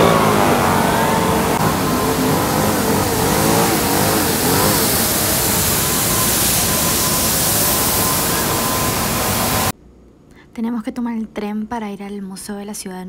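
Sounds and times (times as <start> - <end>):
street noise: 0.0 - 9.7
street sweeper engine running: 0.0 - 9.7
steady high whine: 0.0 - 9.8.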